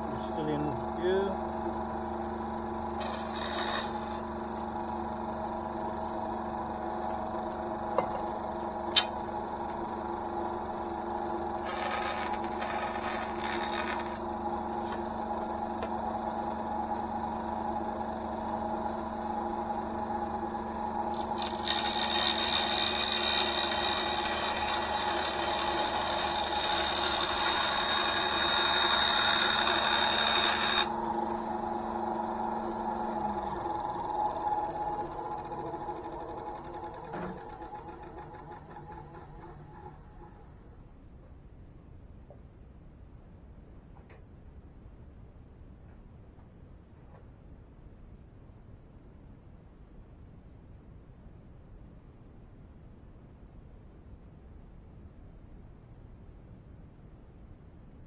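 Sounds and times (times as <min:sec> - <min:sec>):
bandsaw humming: 0:00.0 - 0:39.9
saw blade cutting plywood: 0:03.0 - 0:04.3, 0:11.5 - 0:15.1, 0:21.0 - 0:31.8.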